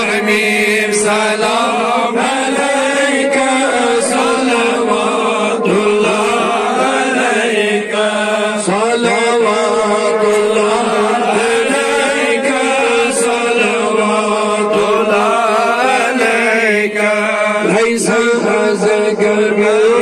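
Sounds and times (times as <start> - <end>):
men chanting into a microphone: 0.0 - 20.0
steady held drone: 0.0 - 20.0.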